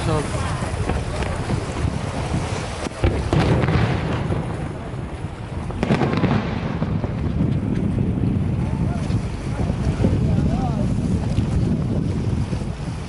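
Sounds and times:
wind rumble on microphone: 0.0s - 13.0s
firework shells bursting: 0.8s - 8.6s.

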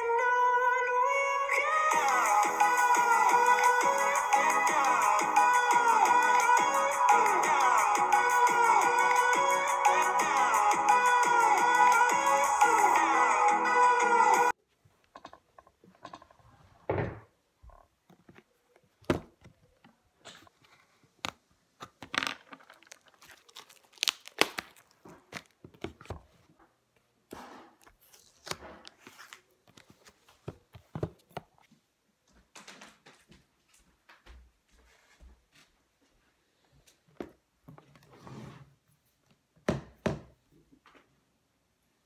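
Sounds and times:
plastic packaging crinkling and tearing: 21.9s - 26.1s, 27.9s - 30.1s.

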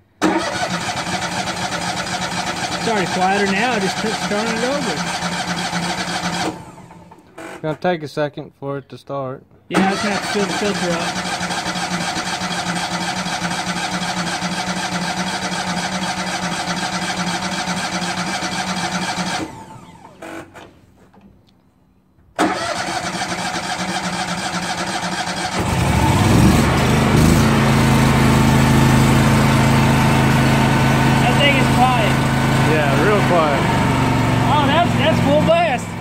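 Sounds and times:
engine cranking on starter: 0.1s - 7.7s, 9.7s - 20.8s, 22.3s - 36.0s
engine running steadily: 0.3s - 7.2s, 25.0s - 36.0s.

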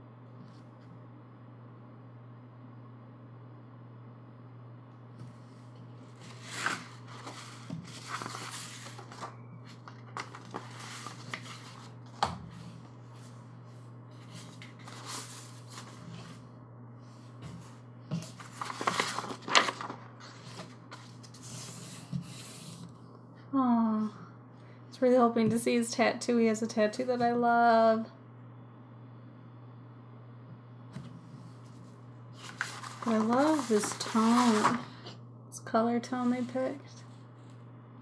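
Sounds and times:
steady low hum: 0.0s - 38.0s
paper sheets rustling and sliding: 6.1s - 13.4s, 14.2s - 16.5s, 17.4s - 22.8s, 31.5s - 35.1s.

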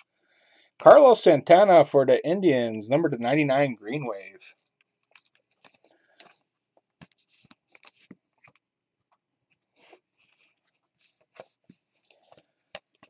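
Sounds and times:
cards scraping and clicking: 4.4s - 6.4s, 7.0s - 8.6s.

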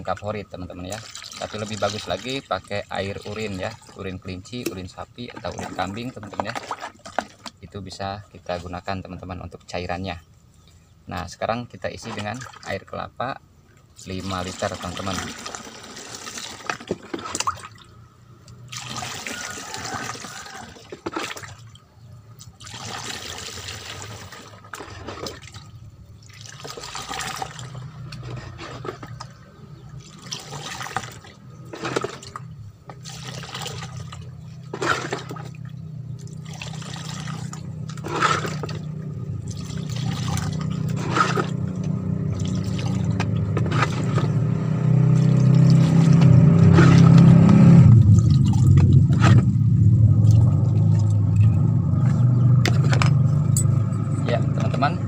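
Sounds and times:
water pouring through funnel: 0.0s - 8.8s, 14.0s - 21.8s, 22.4s - 52.9s
low rumble: 37.4s - 55.0s.

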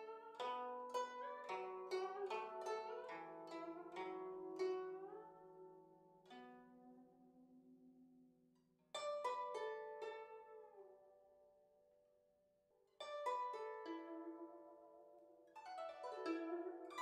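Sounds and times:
plucked string music: 0.0s - 6.7s, 13.0s - 15.0s, 15.6s - 17.0s.

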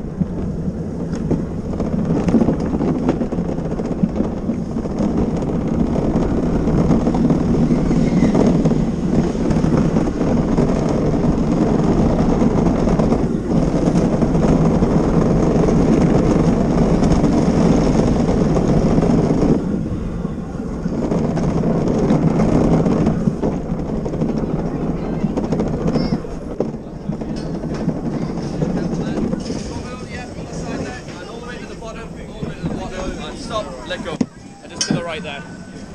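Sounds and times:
cart wheels rolling on concrete: 0.0s - 35.9s.

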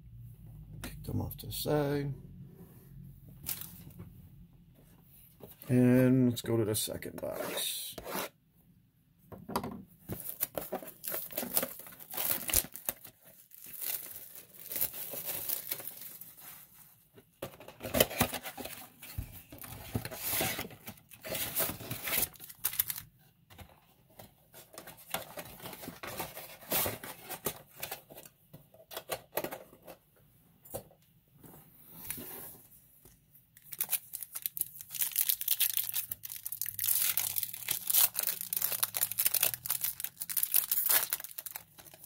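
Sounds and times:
plastic wrap and cardboard tearing: 10.2s - 16.3s, 20.0s - 23.1s, 33.6s - 42.0s
foil packs rustling: 10.2s - 16.4s, 33.7s - 42.0s.

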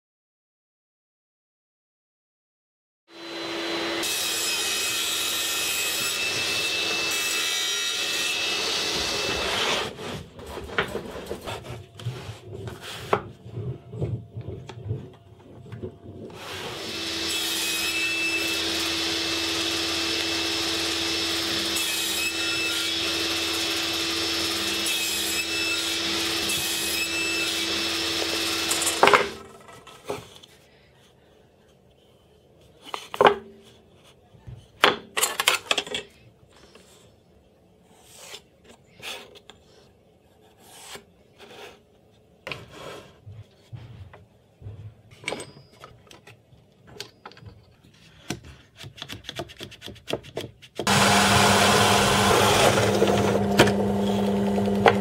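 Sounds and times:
table saw cutting: 3.1s - 10.1s, 16.3s - 29.6s, 50.8s - 55.0s
wood being shifted and rubbed: 9.0s - 16.6s.

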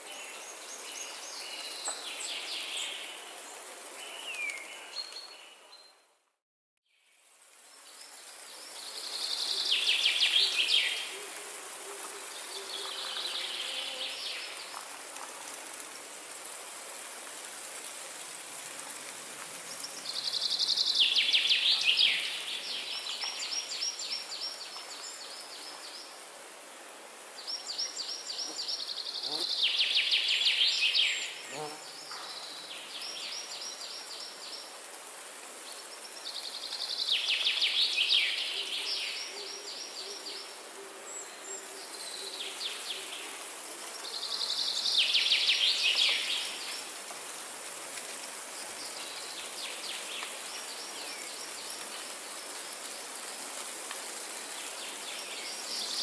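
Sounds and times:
high background hiss: 0.0s - 5.7s, 6.9s - 56.0s.

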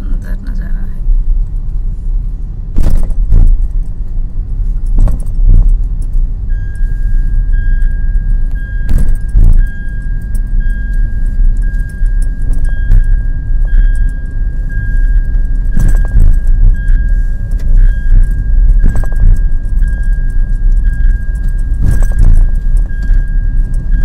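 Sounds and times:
car road rumble: 0.0s - 24.0s
steady high tone: 6.5s - 24.0s.

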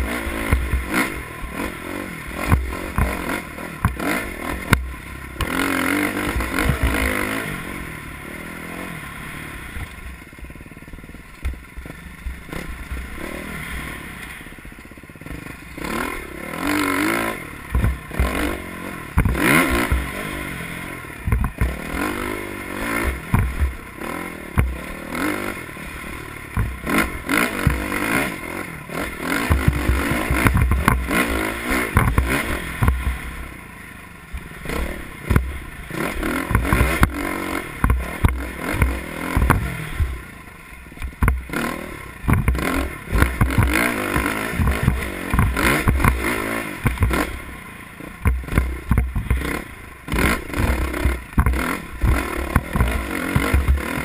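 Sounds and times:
dirt bike engine revving: 0.0s - 54.0s
bike knocking and clattering: 21.2s - 21.9s, 26.5s - 28.2s, 29.4s - 31.3s, 36.4s - 37.2s, 42.2s - 47.3s, 48.2s - 54.0s.

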